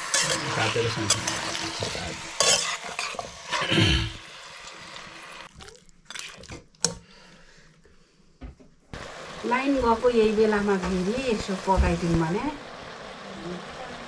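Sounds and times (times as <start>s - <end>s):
metal spatula scraping wok: 0.0s - 4.9s
meat sizzling in oil: 0.0s - 5.7s, 9.0s - 14.0s.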